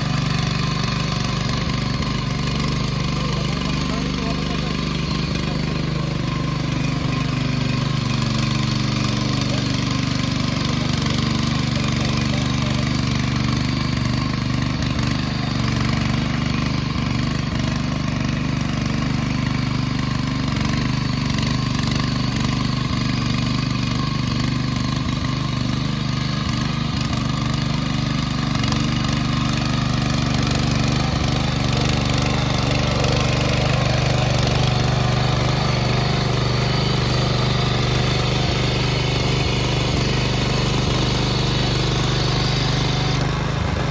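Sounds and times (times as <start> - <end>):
small tiller engine running: 0.0 - 43.9
tines churning mud: 0.0 - 43.9.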